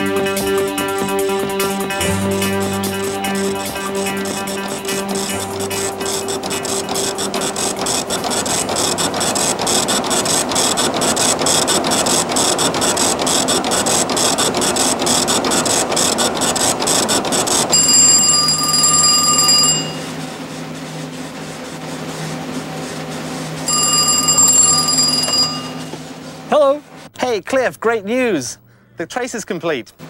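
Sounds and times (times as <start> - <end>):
printer clattering: 0.8 - 20.1
telephone ringing: 2.8 - 11.3, 17.7 - 20.2, 23.6 - 26.1.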